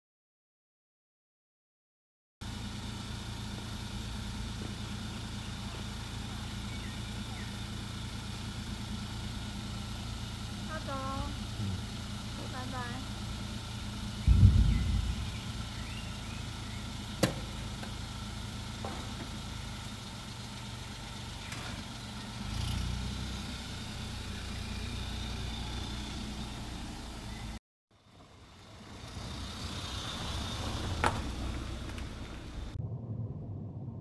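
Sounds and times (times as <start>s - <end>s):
car engine and road rumble: 2.4s - 34.0s.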